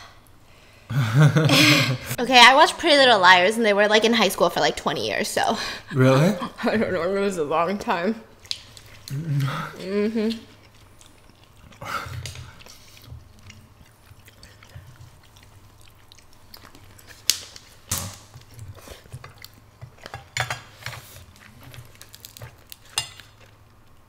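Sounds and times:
chewing and mouth sounds: 8.4s - 24.0s.

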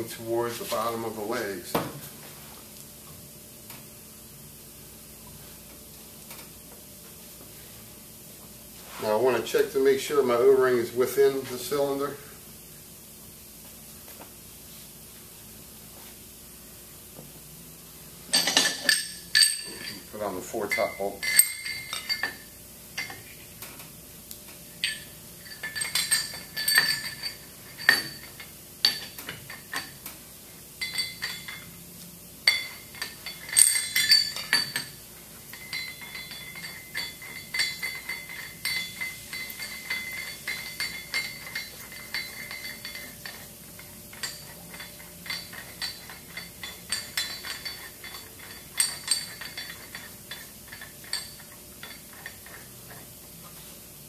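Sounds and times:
metal bolts clinking: 18.3s - 22.4s, 24.8s - 30.1s, 32.5s - 53.0s
lingering metallic ringing tone: 18.3s - 23.2s, 30.8s - 31.8s, 32.4s - 52.3s.

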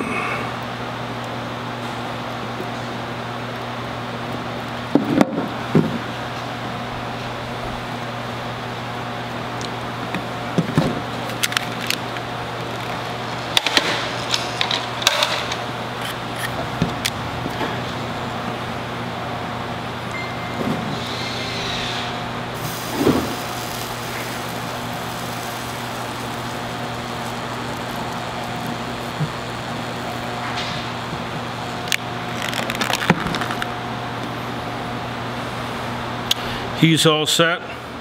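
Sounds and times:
steady low hum: 0.0s - 36.8s.

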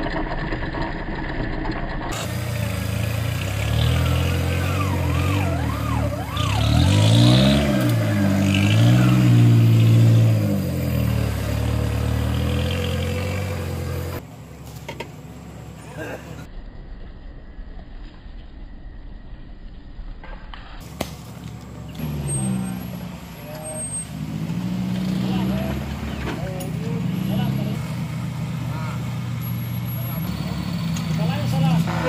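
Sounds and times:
engine revving under load: 2.0s - 14.2s, 21.8s - 32.0s.

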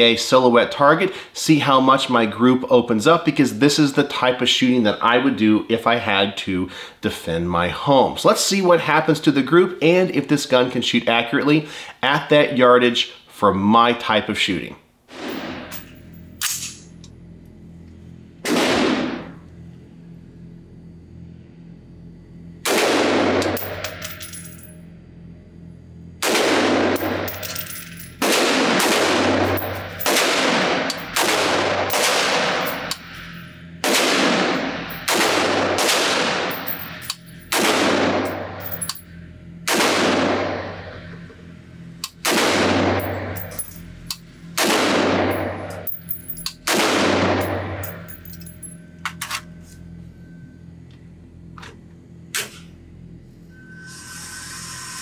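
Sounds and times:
gunshots echoing indoors: 18.4s - 19.3s, 26.2s - 27.3s, 28.2s - 32.9s, 33.8s - 38.6s, 39.7s - 40.8s, 42.2s - 43.4s, 44.6s - 45.7s, 46.7s - 48.1s.

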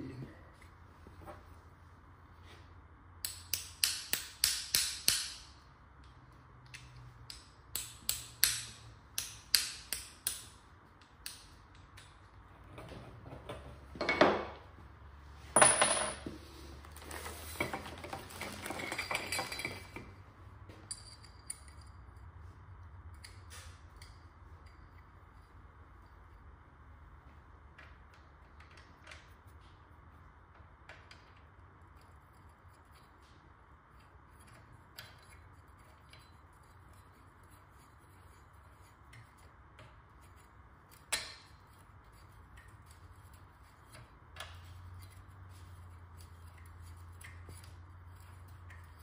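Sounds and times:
rattling parts: 15.5s - 20.2s.

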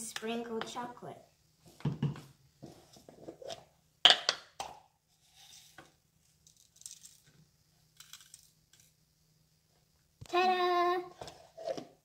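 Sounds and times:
sprinkles rattling: 6.4s - 7.3s.

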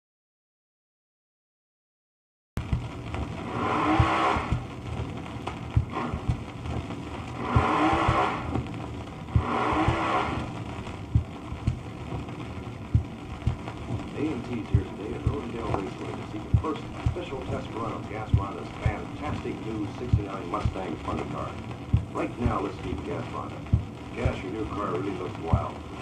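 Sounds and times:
record clicks and crackle: 2.6s - 26.0s
steady low hum: 2.6s - 26.0s
racing car engine recording: 2.8s - 4.9s, 5.8s - 8.7s, 9.3s - 11.8s.

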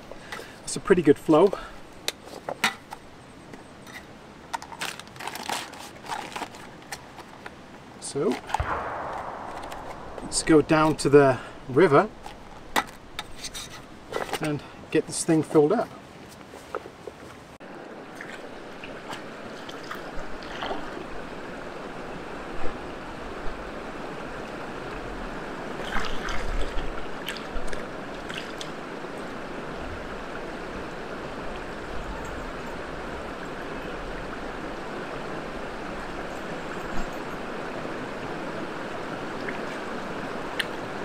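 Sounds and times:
river flowing over stones: 7.6s - 14.8s, 17.6s - 41.0s
splashes of wading in water: 18.0s - 21.3s, 25.8s - 28.8s.

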